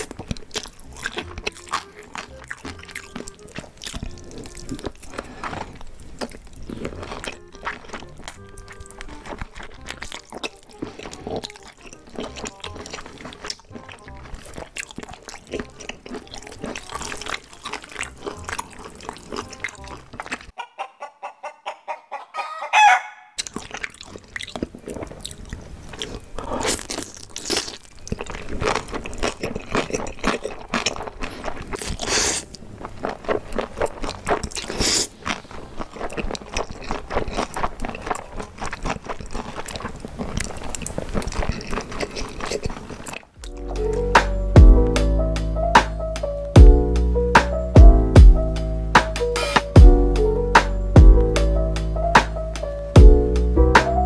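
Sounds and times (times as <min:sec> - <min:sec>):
slurping and chewing noodles: 0:00.0 - 0:20.6, 0:23.4 - 0:44.9
brief loud pitched sound: 0:47.4 - 0:50.0.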